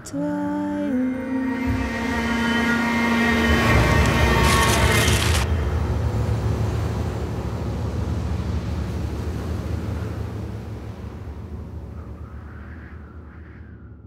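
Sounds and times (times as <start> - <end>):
low rumble: 0.0 - 14.0
loud harsh noise: 0.9 - 7.2.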